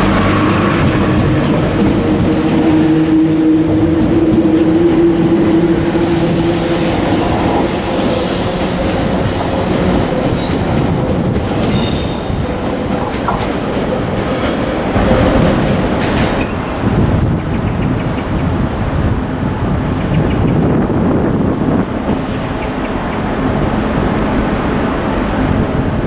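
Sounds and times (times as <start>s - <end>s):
wheel and rail rumble: 0.0s - 26.0s.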